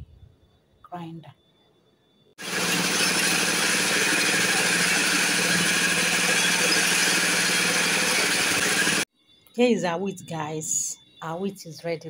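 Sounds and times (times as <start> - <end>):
grain mill grinding: 2.4 - 9.1.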